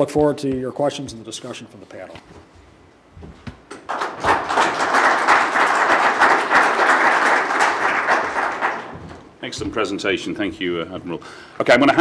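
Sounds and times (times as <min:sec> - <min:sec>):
audience applauding: 0:03.8 - 0:09.0.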